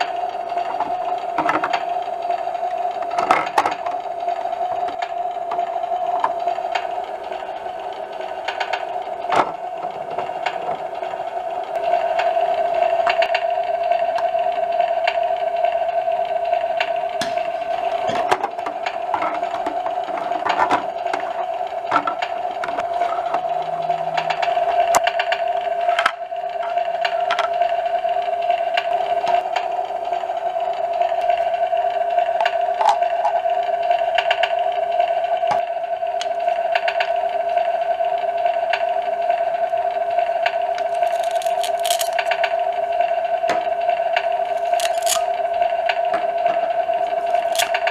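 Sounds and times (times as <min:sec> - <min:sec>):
toy speaker buzzing hum: 0:00.0 - 0:47.9
plastic toy clicks: 0:40.8 - 0:42.4, 0:44.6 - 0:45.3, 0:47.3 - 0:47.9.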